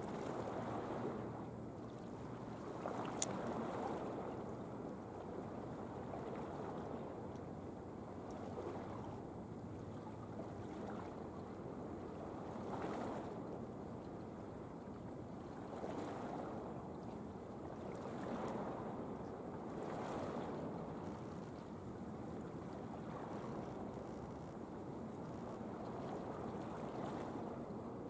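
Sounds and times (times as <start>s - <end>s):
water lapping against breakwater: 0.0s - 4.5s.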